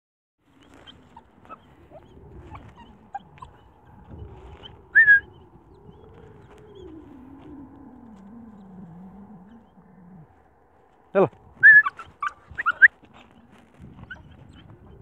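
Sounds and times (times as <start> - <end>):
puppy whining and howling: 0.6 - 10.4, 11.6 - 15.0
puppy high cry: 11.6 - 13.0.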